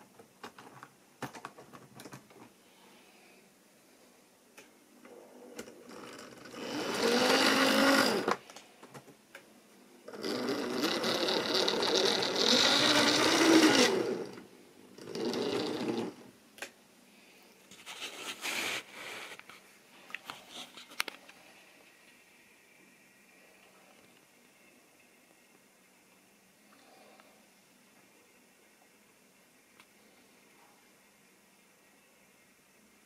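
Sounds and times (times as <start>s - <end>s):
model train motor whirring: 5.6s - 8.4s, 10.1s - 14.4s, 15.0s - 16.2s.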